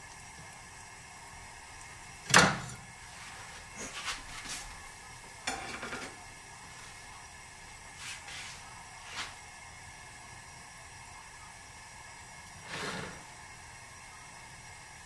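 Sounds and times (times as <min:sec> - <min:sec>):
dishes and utensils clinking: 0:05.5 - 0:06.2.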